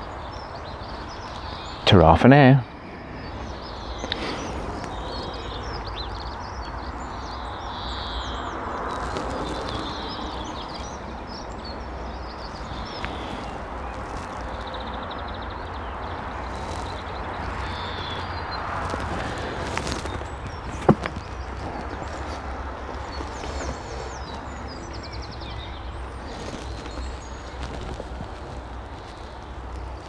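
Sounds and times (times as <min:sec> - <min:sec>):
rapid bird trill: 0:00.0 - 0:30.0
small birds chirping: 0:00.0 - 0:30.0
steady background noise: 0:00.0 - 0:30.0.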